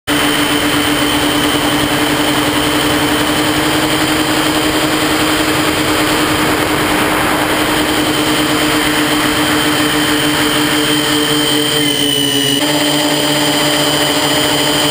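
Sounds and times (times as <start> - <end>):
rushing air: 0.1 - 12.6
drone motors whining: 0.1 - 14.9.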